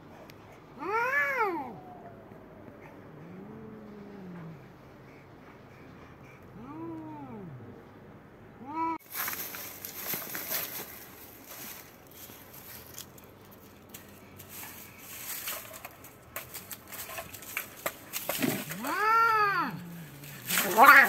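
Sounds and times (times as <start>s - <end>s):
cat yowling: 0.8s - 4.5s, 18.6s - 21.0s
cats scuffling in dry leaves: 9.0s - 21.0s.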